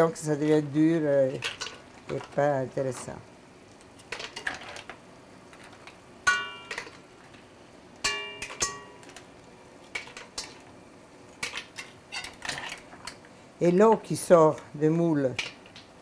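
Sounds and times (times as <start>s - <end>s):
metal utensil clinking on a pan: 8.0s - 9.1s.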